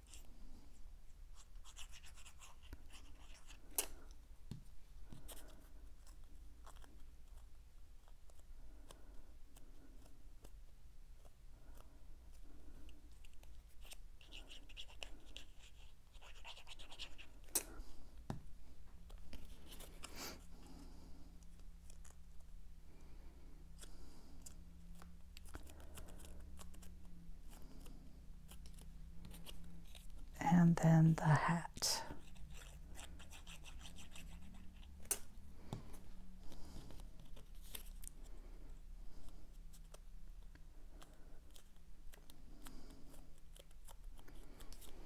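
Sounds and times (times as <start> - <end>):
glue tip scratching on cardstock: 1.3 - 3.9, 13.2 - 17.6, 28.5 - 30.2, 32.2 - 35.2
hands rustling cardstock paper: 32.2 - 38.4.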